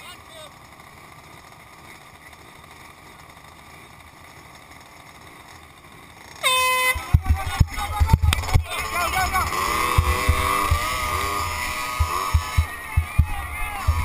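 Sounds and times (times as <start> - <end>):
air horn blast: 6.4 - 7.3
low thumps: 9.4 - 14.0.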